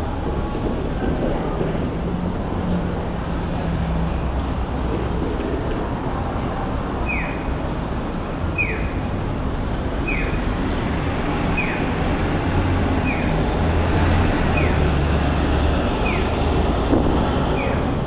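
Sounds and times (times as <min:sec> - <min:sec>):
street traffic rumble: 0:00.0 - 0:18.0
pedestrian crossing signal chirp: 0:07.0 - 0:07.6, 0:08.5 - 0:09.1, 0:10.0 - 0:10.4, 0:11.5 - 0:12.0, 0:13.0 - 0:13.4, 0:14.5 - 0:15.0.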